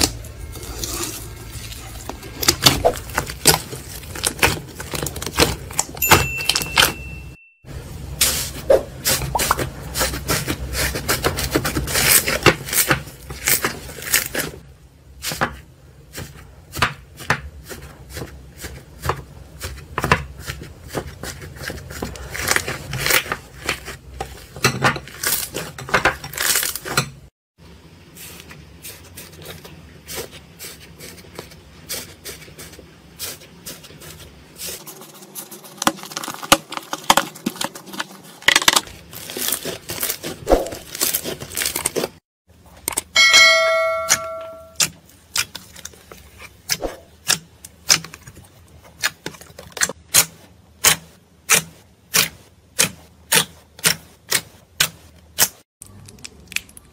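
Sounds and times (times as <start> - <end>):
crunchy slime crackling: 0.0 - 6.0, 34.6 - 42.2.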